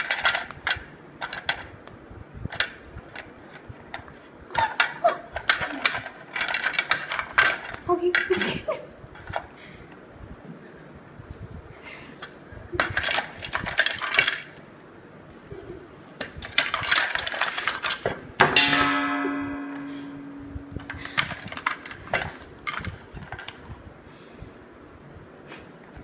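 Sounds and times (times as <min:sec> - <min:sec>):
sharp ringing clink: 0:18.6 - 0:21.2.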